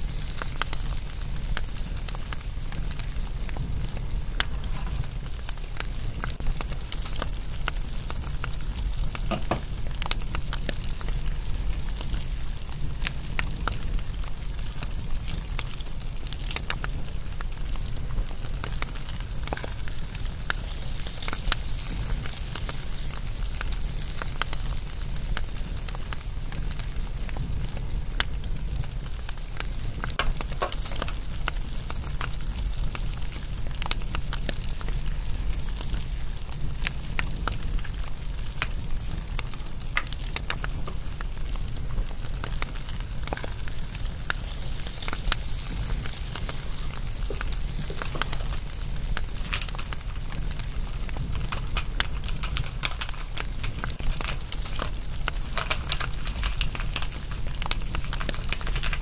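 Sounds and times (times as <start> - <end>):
low fire rumble: 0.0 - 59.0
wood fire crackling: 0.0 - 59.0
sharp pops and snaps: 29.1 - 59.0.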